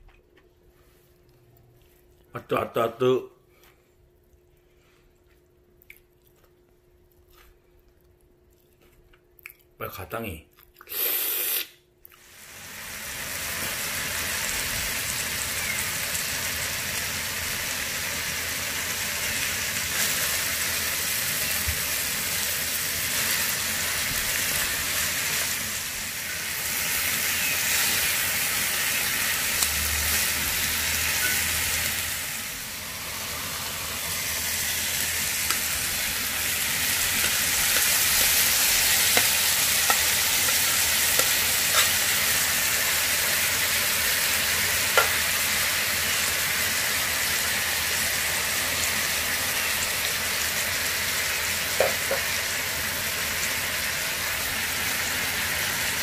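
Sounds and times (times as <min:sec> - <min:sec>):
food sizzling on a griddle: 0:12.2 - 0:56.0
metal tongs scraping food: 0:36.8 - 0:42.2.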